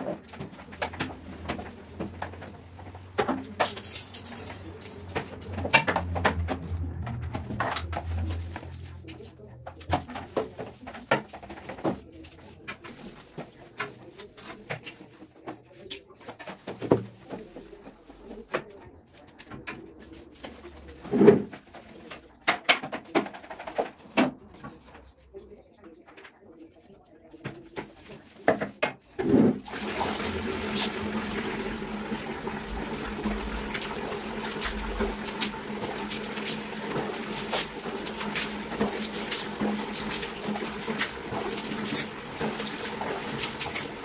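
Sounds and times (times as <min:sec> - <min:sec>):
scrub brush scrubbing tiles: 0:00.0 - 0:18.5, 0:27.3 - 0:44.0
low hum: 0:04.1 - 0:09.8.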